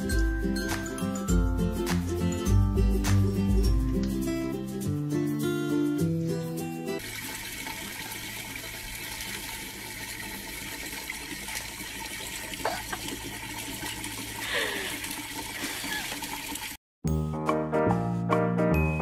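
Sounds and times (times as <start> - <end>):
water running from tap: 7.0 - 16.8.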